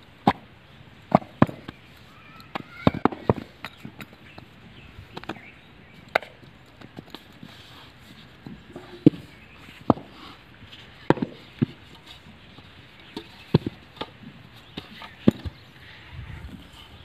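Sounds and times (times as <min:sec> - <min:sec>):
moulds thudding on ground: 0:01.1 - 0:01.8, 0:02.5 - 0:04.4, 0:08.4 - 0:15.6.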